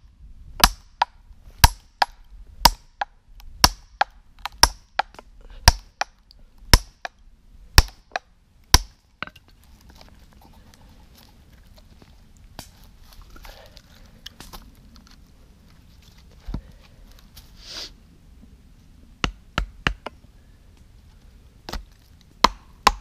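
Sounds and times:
axe splitting log: 0:00.6 - 0:07.2, 0:07.8 - 0:09.4, 0:19.2 - 0:20.2, 0:21.7 - 0:23.0.

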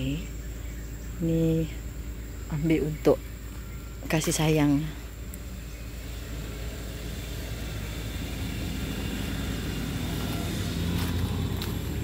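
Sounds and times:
passing vehicle engine rumble: 0:04.8 - 0:12.0.

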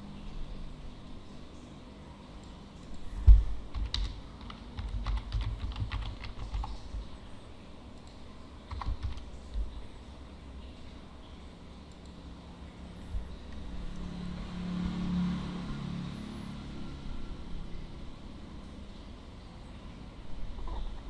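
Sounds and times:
typing on computer keyboard: 0:02.8 - 0:07.0, 0:08.0 - 0:09.7.

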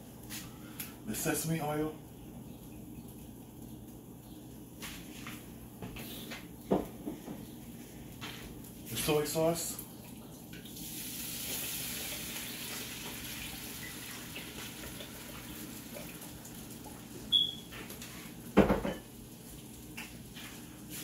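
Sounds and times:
sauce sizzling in hot wok: 0:10.8 - 0:18.4.

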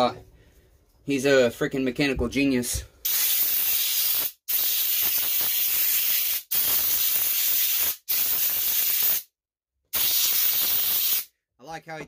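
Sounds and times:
spray hissing: 0:03.0 - 0:09.2, 0:10.0 - 0:11.3.

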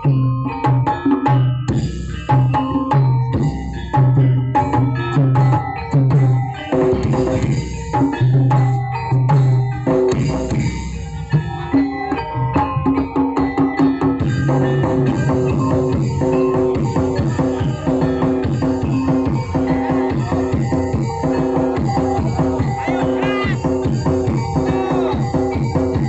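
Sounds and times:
drum-heavy music over loudspeakers: 0:00.0 - 0:26.0
deep bass pulses: 0:14.2 - 0:22.8.

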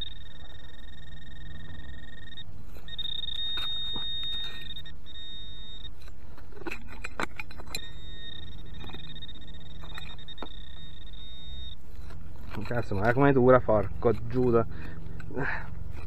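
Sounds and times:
metal detector high electronic tone: 0:00.0 - 0:16.0
digging scrapes in dry soil: 0:11.8 - 0:16.0.

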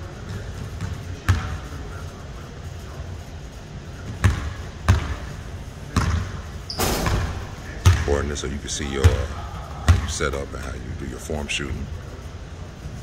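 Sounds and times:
basketballs bouncing on wooden floor: 0:00.3 - 0:01.6, 0:04.1 - 0:08.3, 0:08.9 - 0:10.2.

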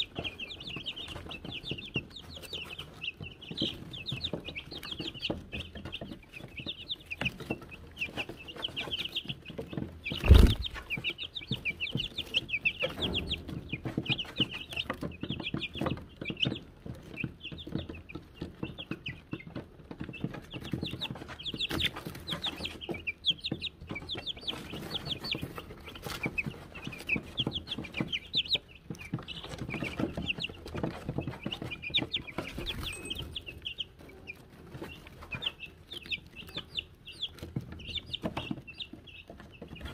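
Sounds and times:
chicks peeping: 0:00.0 - 0:39.9
scratching and pecking in shavings: 0:00.0 - 0:39.9
loud thump: 0:10.2 - 0:10.8.

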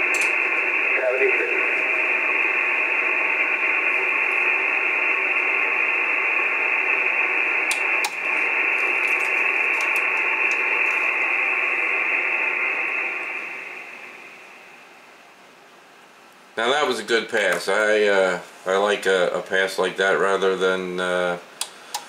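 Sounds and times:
radio static hiss: 0:00.0 - 0:22.0
sharp clicks: 0:07.7 - 0:08.2.

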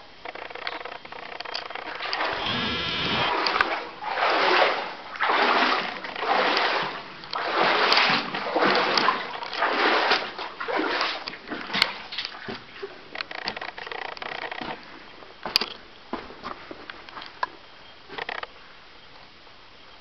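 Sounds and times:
footsteps wading through water: 0:01.9 - 0:13.1.

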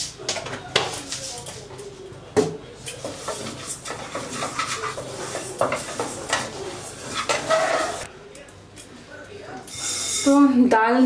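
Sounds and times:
spatula scraping lentils in pan: 0:02.9 - 0:08.1.

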